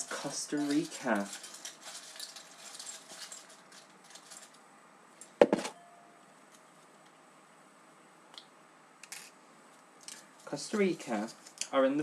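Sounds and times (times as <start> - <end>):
paper notes rustling: 0.0 - 4.6.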